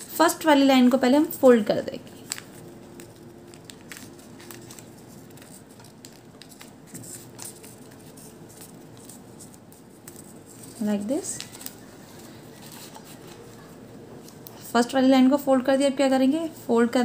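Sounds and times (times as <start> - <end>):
faint steady hum: 0.0 - 17.0
paper being folded and creased: 2.1 - 14.7.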